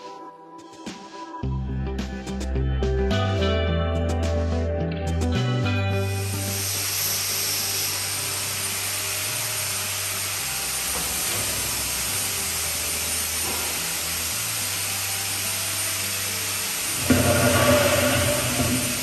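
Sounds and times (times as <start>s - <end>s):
low steady bass line: 1.4s - 19.0s
rough hissing texture: 6.2s - 19.0s.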